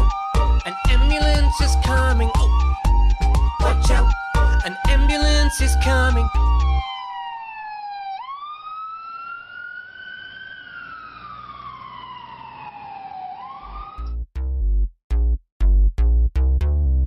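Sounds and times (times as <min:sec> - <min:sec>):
siren wailing: 0:00.0 - 0:14.1.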